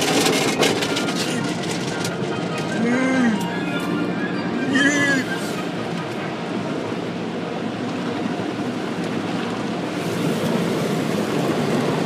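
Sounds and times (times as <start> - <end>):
car wash spraying water: 5.4 - 12.0.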